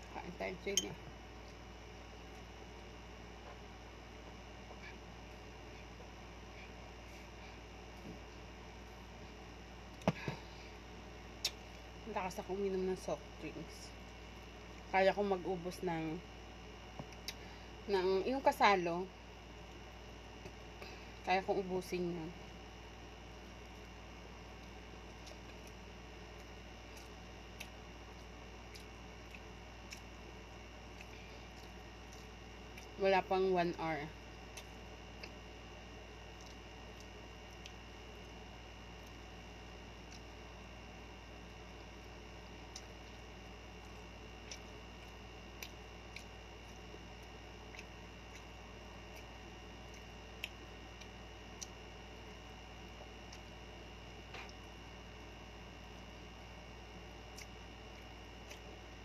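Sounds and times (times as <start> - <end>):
steady low hum: 0.0 - 59.0
eating clicks and smacks: 24.6 - 30.3, 36.3 - 38.4, 42.1 - 51.8, 57.2 - 58.8.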